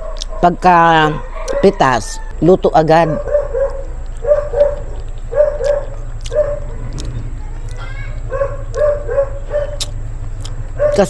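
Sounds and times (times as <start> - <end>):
dog yipping: 1.2 - 2.0, 2.9 - 7.1, 8.3 - 9.9, 10.7 - 11.0.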